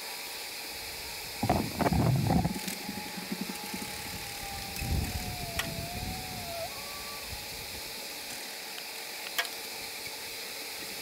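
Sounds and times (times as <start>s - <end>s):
bee swarm buzzing: 0.8s - 7.9s
faint clicks: 1.4s - 6.6s.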